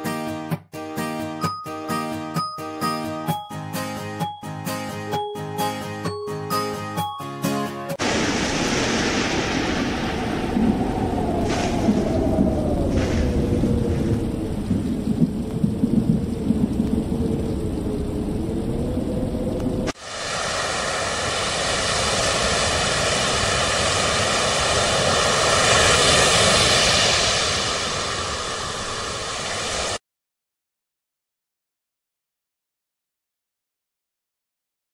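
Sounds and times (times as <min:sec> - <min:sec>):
sea waves rushing: 0:08.0 - 0:14.1, 0:19.9 - 0:30.0
rumbling thunder: 0:08.0 - 0:20.0
rain: 0:08.0 - 0:30.0.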